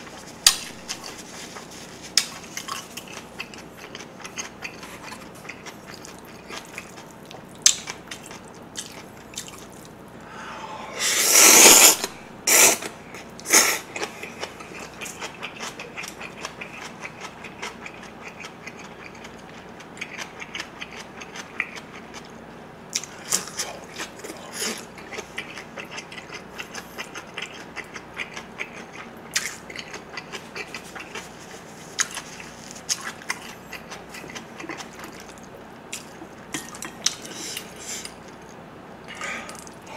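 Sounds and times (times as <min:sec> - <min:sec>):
wet chewing with crunches: 0:00.0 - 0:10.0, 0:12.8 - 0:39.9
slurp of noodles: 0:11.0 - 0:12.9.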